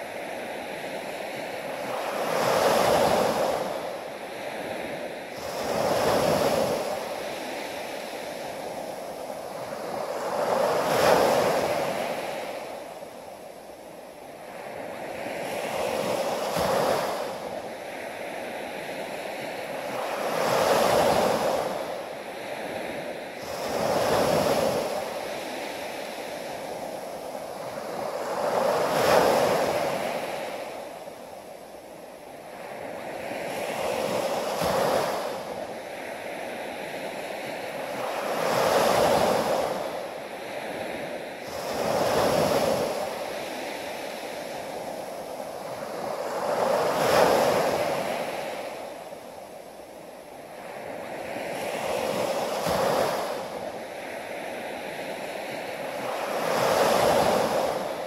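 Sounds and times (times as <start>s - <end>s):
small waves washing up beach: 0.0s - 58.0s.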